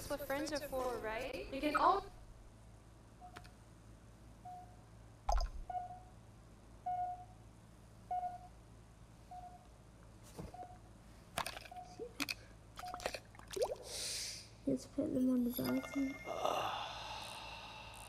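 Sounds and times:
short electronic beep: 0:15.4 - 0:16.4.

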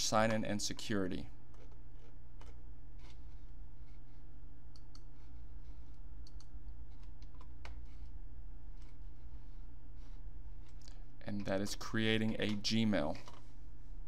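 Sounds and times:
low electrical hum: 0:00.0 - 0:14.0
computer mouse clicks: 0:04.7 - 0:08.1.

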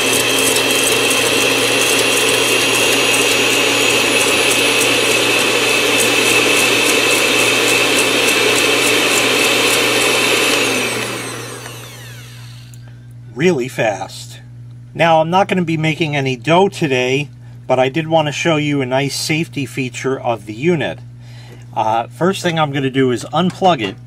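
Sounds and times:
electric hand mixer whining: 0:00.0 - 0:12.9.

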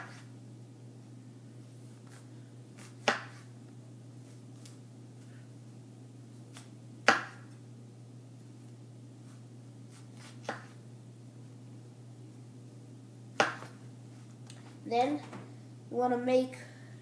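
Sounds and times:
steady low hum: 0:00.0 - 0:17.0
knife slicing onion: 0:02.8 - 0:03.5, 0:09.9 - 0:10.7.

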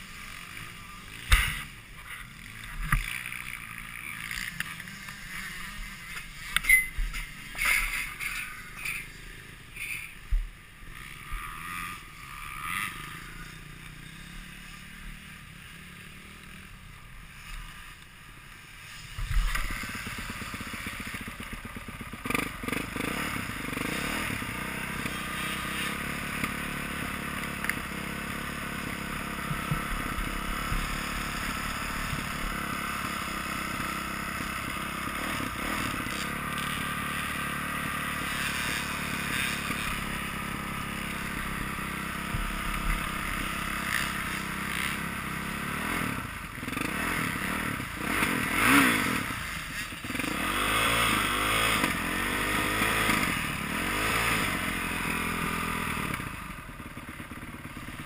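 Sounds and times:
dirt bike engine idling: 0:00.0 - 0:58.0.

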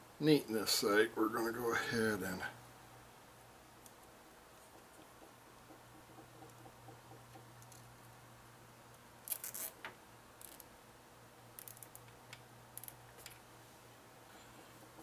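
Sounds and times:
low steady hum: 0:00.0 - 0:15.0
clicks and scrapes of cable tying: 0:09.3 - 0:10.7, 0:11.6 - 0:13.4.

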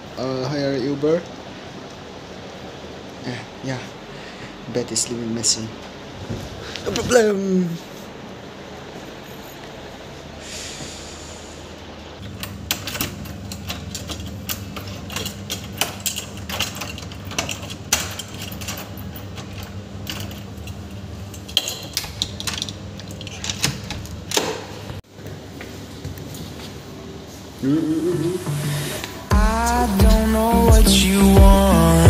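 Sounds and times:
metal door handle and lock rattling: 0:12.3 - 0:24.7.

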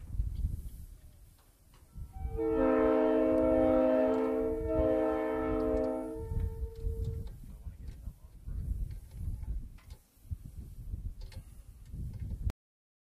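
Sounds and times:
multi-chime air horn chord: 0:02.2 - 0:07.1.

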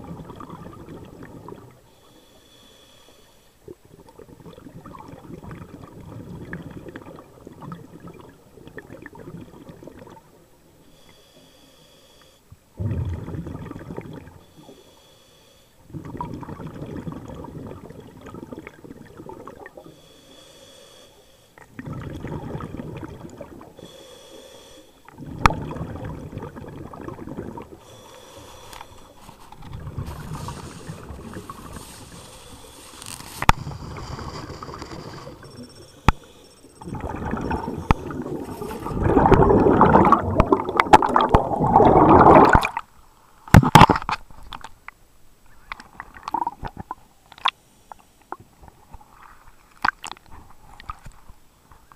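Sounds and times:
exhaled bubbles rumbling: 0:00.0 - 0:01.8, 0:03.7 - 0:10.3, 0:12.8 - 0:14.4, 0:15.9 - 0:19.9, 0:21.6 - 0:23.8, 0:25.1 - 0:27.9, 0:29.5 - 0:32.3, 0:33.4 - 0:35.9, 0:36.7 - 0:42.9
regulator hissing inhale: 0:01.9 - 0:03.6, 0:10.8 - 0:12.5, 0:14.4 - 0:15.8, 0:19.8 - 0:21.6, 0:23.8 - 0:25.1, 0:27.8 - 0:29.5, 0:30.1 - 0:36.8.

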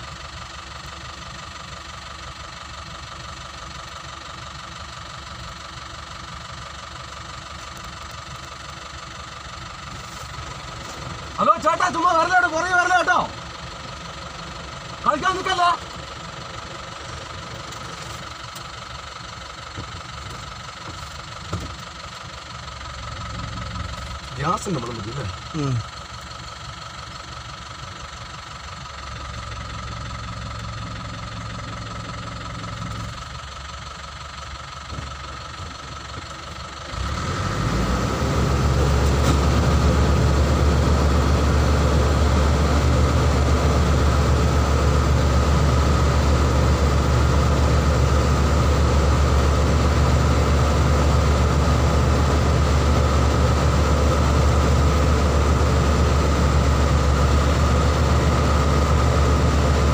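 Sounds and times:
vehicle engine idling: 0:00.0 - 0:59.9
loud low engine drone: 0:34.8 - 0:59.9.

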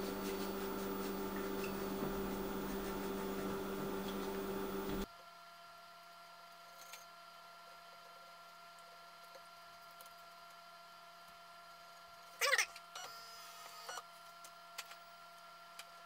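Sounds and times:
printer humming electrically: 0:00.0 - 0:05.1.

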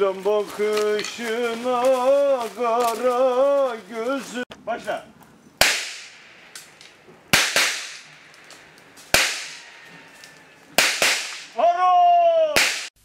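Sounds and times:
loud sharp cracks: 0:05.6 - 0:09.8, 0:10.7 - 0:11.6, 0:12.5 - 0:13.0.

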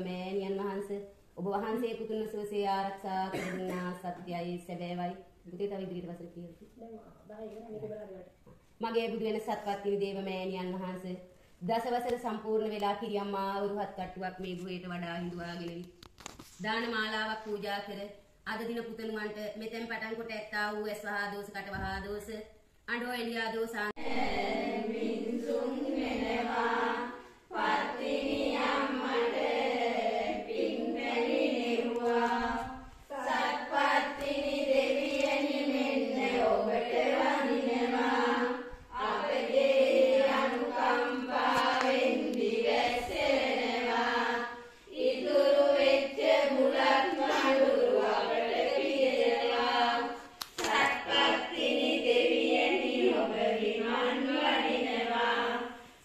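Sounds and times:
women chanting in unison: 0:23.7 - 0:55.9.

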